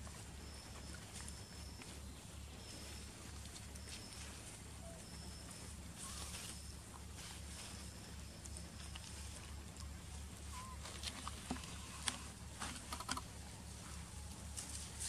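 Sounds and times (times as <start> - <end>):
low steady hum: 0.0 - 15.0
rustling in grass and leaves: 0.0 - 15.0
faint chirp: 0.1 - 11.0.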